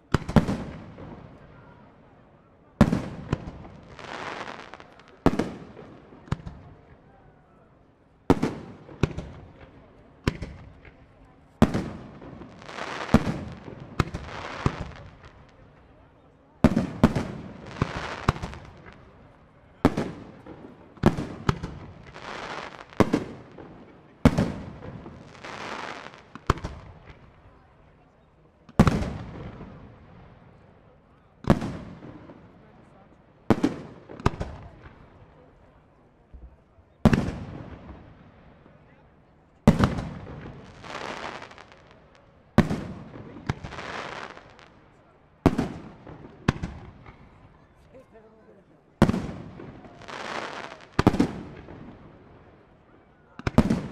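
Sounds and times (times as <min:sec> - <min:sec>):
small firework pop: 0:09.0 - 0:11.1, 0:26.3 - 0:27.3.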